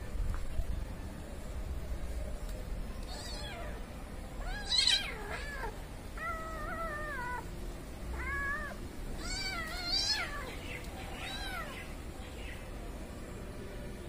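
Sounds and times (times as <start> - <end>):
kittens meowing: 3.0 - 7.5, 8.1 - 12.0.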